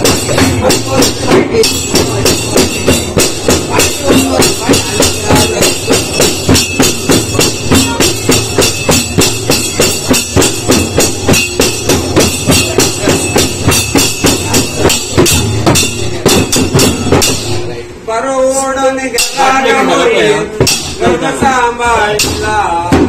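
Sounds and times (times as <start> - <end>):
clay pot drums: 0.0 - 18.0, 19.1 - 23.0
small hand cymbals: 0.0 - 18.0.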